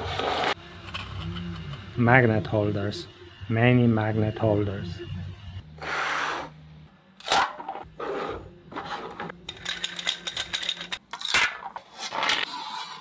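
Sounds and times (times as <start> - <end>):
plastic parts scraping and clicking: 8.7 - 13.0.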